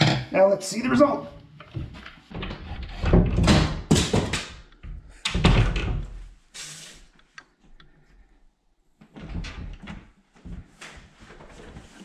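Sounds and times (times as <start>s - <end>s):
short hiss: 6.5s - 7.1s.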